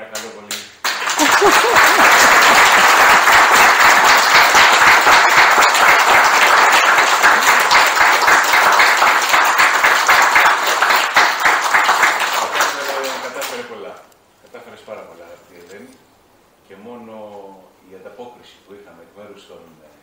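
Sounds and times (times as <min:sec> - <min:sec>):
audience applauding: 0:00.8 - 0:13.7.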